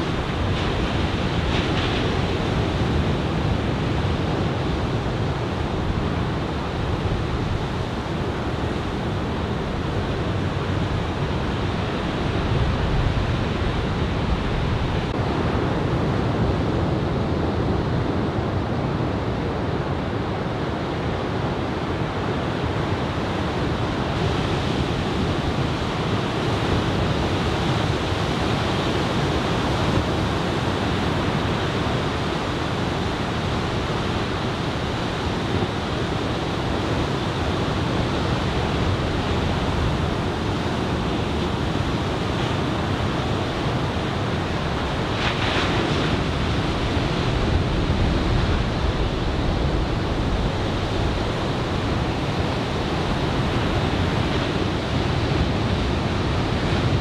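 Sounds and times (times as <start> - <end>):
waves breaking on beach: 0.0 - 16.1, 21.1 - 57.0
wind: 0.0 - 57.0.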